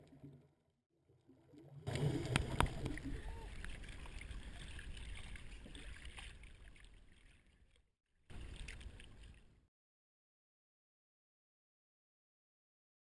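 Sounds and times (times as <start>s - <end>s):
water sloshing against camera: 1.4s - 9.7s.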